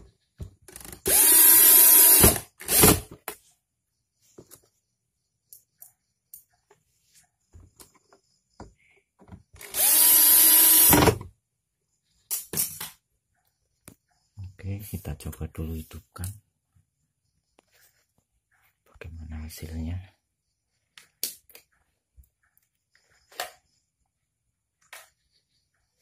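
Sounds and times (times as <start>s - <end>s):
electric screwdriver whirring: 1.0s - 3.1s, 9.6s - 11.2s.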